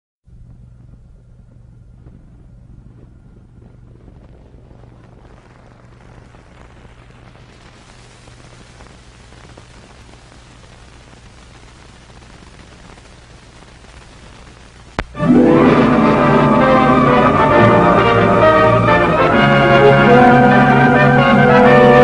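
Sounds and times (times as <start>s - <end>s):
low hum: 0.3s - 6.2s, 15.1s - 21.4s
faint crackles: 0.3s - 15.2s
film soundtrack hiss: 0.3s - 22.0s.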